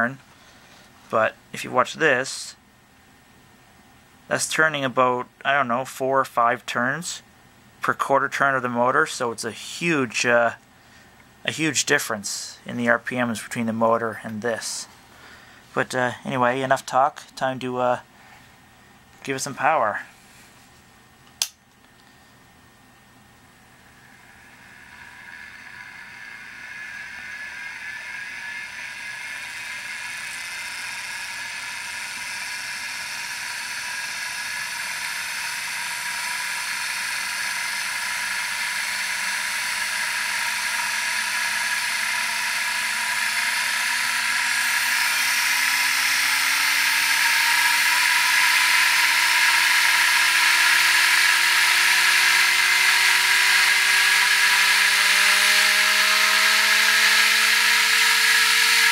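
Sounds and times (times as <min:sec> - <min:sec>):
motor driven drum whirring: 0:22.8 - 0:58.9.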